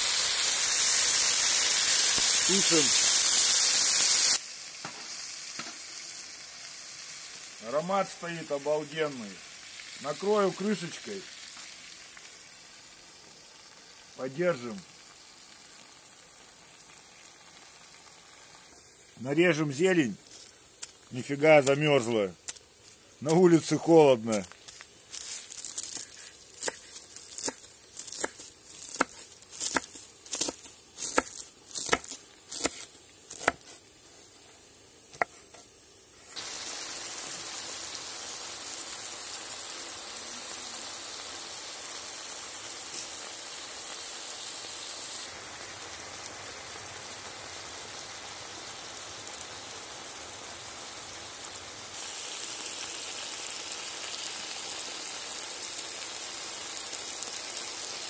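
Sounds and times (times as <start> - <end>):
meat sizzling in a pan: 0.0 - 58.0
knife chopping on wooden board: 33.4 - 33.6.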